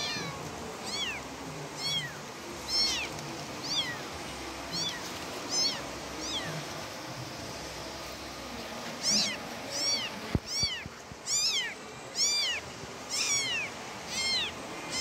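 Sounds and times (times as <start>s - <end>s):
kittens mewing: 0.0s - 4.1s, 4.7s - 6.6s, 9.0s - 15.0s.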